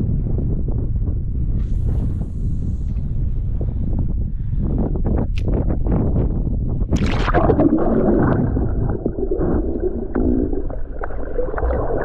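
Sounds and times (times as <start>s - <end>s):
splash into sea: 6.9s - 12.0s
underwater gurgling and bubbling: 6.9s - 12.0s.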